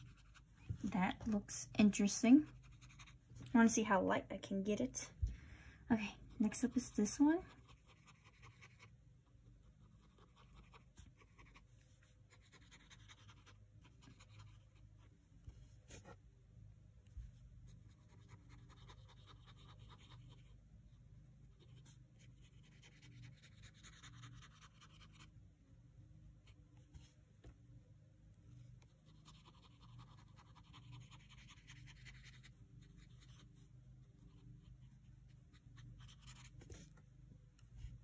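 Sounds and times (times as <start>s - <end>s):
brush pen scratching paper: 0.0s - 3.3s, 6.2s - 15.1s, 17.8s - 20.6s, 21.4s - 25.3s, 28.8s - 37.1s.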